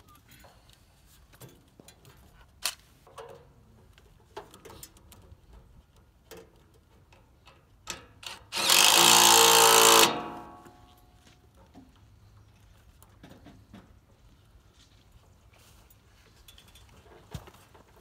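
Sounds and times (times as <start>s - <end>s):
cordless drill driving a bolt: 8.2s - 10.6s.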